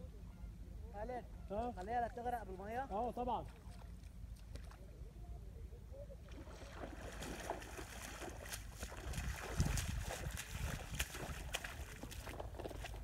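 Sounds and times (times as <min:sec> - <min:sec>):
feet splashing in shallow water: 0:03.2 - 0:05.0, 0:06.3 - 0:13.0
wind rumbling on microphone: 0:06.3 - 0:13.0.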